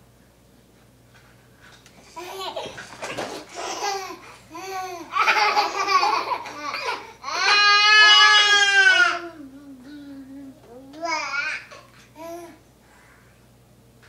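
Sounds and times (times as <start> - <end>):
baby giggling: 2.2 - 7.1.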